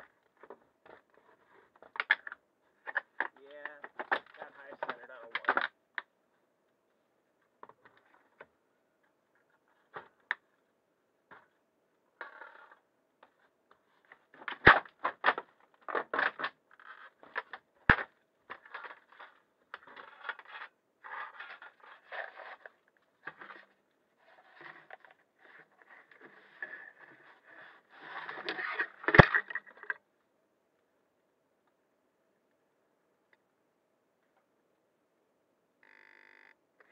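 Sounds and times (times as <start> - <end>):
irregular scraping and crunching: 12.2 - 30.0.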